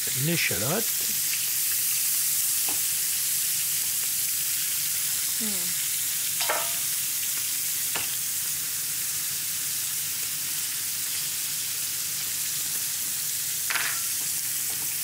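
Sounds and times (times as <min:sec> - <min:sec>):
meat sizzling in a frying pan: 0:00.0 - 0:15.0
metal spoon clinking on pan: 0:06.4 - 0:06.9, 0:13.7 - 0:14.1.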